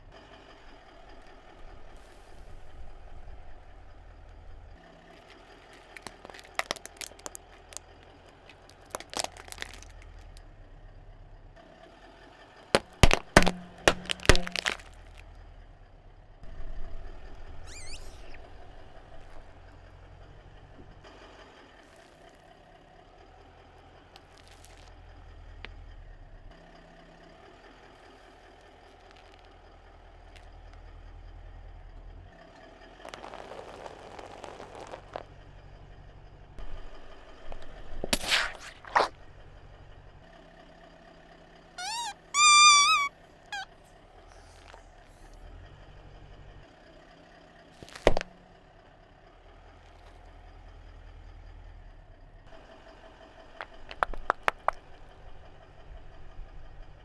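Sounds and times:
car engine idling: 0.0s - 38.1s, 39.1s - 57.0s
tyre rolling over squeaky toys: 5.2s - 10.3s, 12.8s - 15.2s, 17.5s - 18.5s, 33.0s - 35.3s, 41.8s - 43.7s
sharp cracks: 5.7s - 10.4s, 12.8s - 15.3s, 37.6s - 39.2s, 53.6s - 54.9s
rubber chicken squealing: 17.6s - 18.5s, 41.8s - 43.8s.

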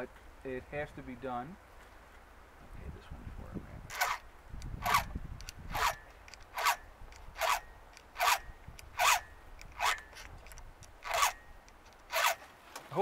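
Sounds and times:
file rasping on chainsaw chain: 3.9s - 4.2s, 4.8s - 5.1s, 5.7s - 10.3s, 11.0s - 12.5s.

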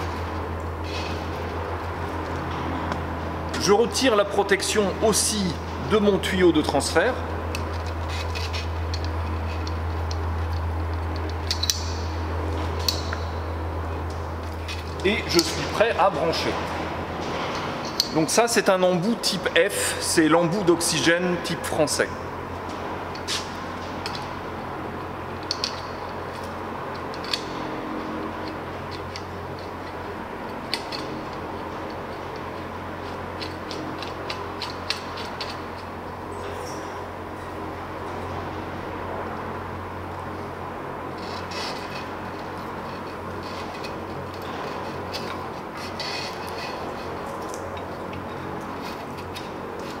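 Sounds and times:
steady low hum: 0.0s - 50.0s
metal hose fitting clinking: 7.5s - 12.1s, 17.6s - 18.2s, 25.4s - 27.7s.

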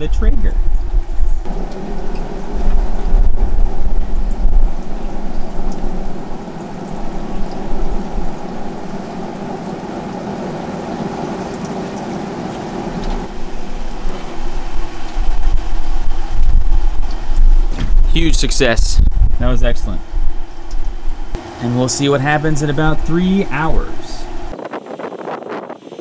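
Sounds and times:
wind buffeting the microphone: 0.0s - 9.6s, 13.3s - 21.4s
rushing wet windy weather: 0.0s - 26.0s.

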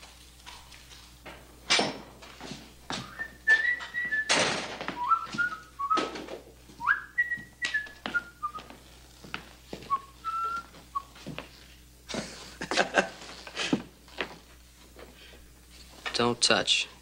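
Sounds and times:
man whistling a tune: 3.0s - 4.4s, 5.0s - 6.1s, 6.8s - 8.7s, 9.9s - 11.2s
boot footsteps on wooden floor: 7.4s - 11.5s.

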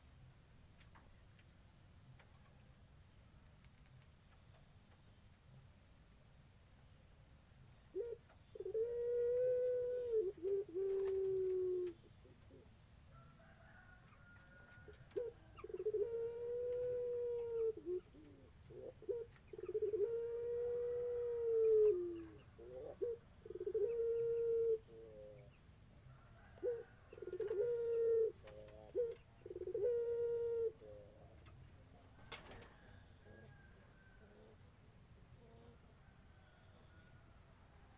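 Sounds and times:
dove cooing: 7.8s - 12.8s, 13.4s - 34.7s, 35.4s - 37.2s.

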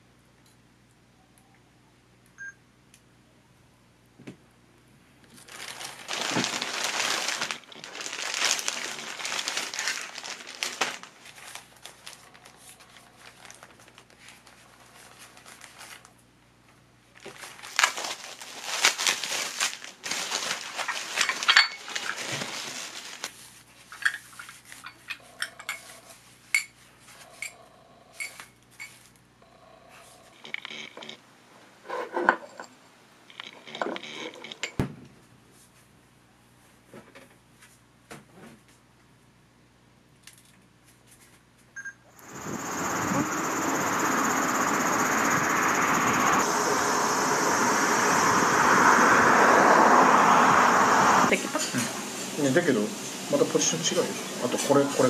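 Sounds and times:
plastic and paper crinkling: 5.2s - 16.2s, 17.1s - 25.1s.

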